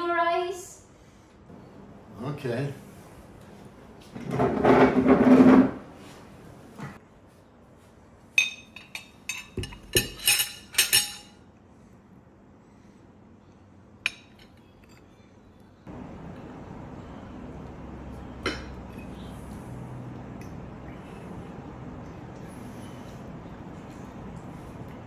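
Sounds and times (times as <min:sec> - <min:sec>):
cutlery clinking on ceramic plates: 0:08.4 - 0:11.4
cutlery scraping on plate: 0:08.5 - 0:11.3.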